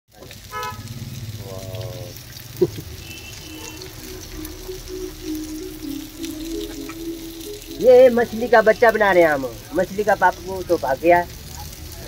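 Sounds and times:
fish sizzling in oil: 0.1s - 12.0s.

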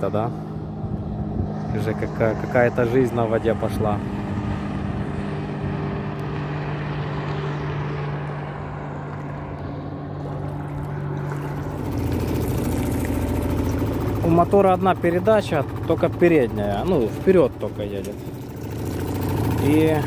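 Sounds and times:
outboard motor running: 0.0s - 20.0s.

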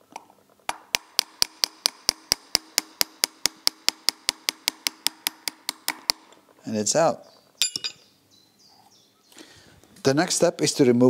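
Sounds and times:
small hammer tapping metal punch: 7.6s - 8.0s.

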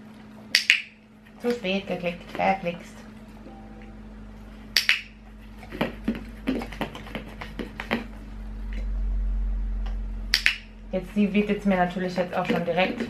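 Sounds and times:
low rumble: 3.3s - 5.6s, 8.1s - 12.0s.

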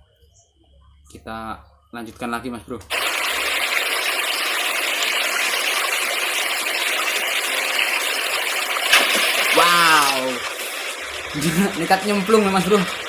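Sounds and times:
river flowing: 2.9s - 13.0s.

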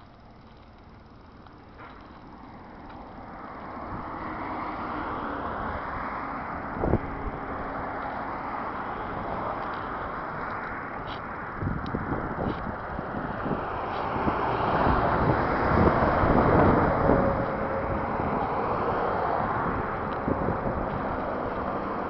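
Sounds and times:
highway traffic rushing: 0.0s - 22.0s
wind on microphone: 6.6s - 8.0s, 9.0s - 22.0s.

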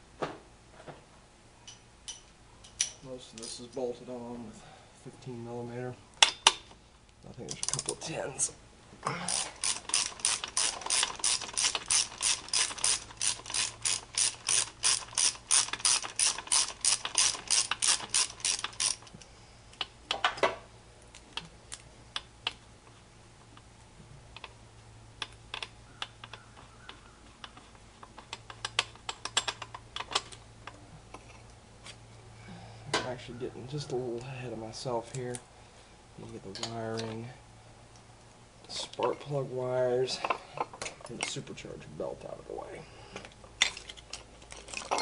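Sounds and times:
socket ratchet clicking: 9.3s - 19.2s.

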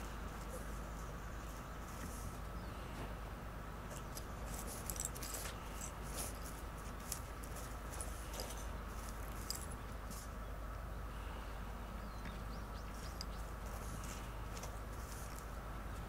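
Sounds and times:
cat scratching dirt and gravel: 3.9s - 10.4s, 12.9s - 16.0s.

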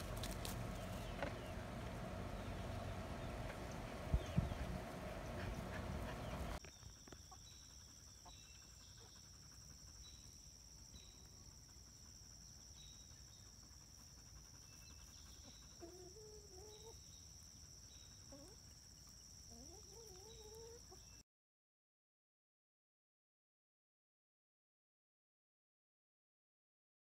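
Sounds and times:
chickens clucking: 0.0s - 8.4s, 14.8s - 17.1s, 18.2s - 21.2s.

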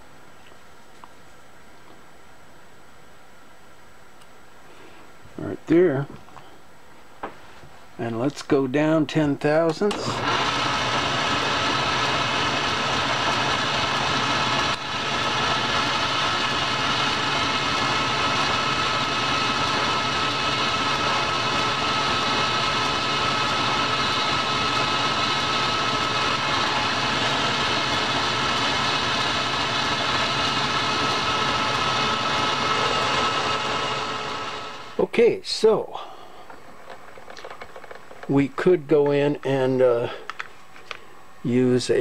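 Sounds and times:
metal lathe running: 9.9s - 35.0s.

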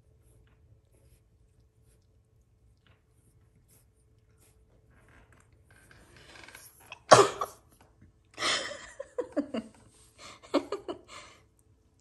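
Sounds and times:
person sneezing: 6.9s - 7.6s
person laughing: 8.4s - 11.4s.

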